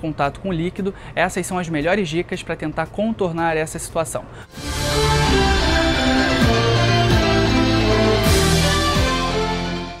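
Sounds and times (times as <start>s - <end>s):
news theme music: 4.5s - 10.0s.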